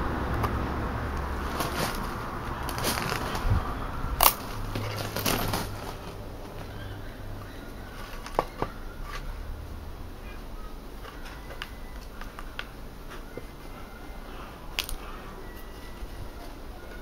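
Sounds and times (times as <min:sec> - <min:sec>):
willow rods rustling and clicking: 0:01.1 - 0:09.4, 0:10.9 - 0:13.6.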